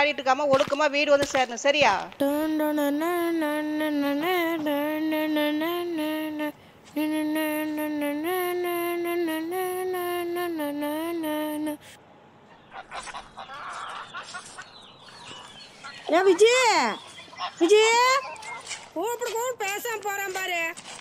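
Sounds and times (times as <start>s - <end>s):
boy humming a slow tune: 2.2s - 12.0s
breath: 6.6s - 6.9s
faint bird chirps: 12.5s - 19.0s.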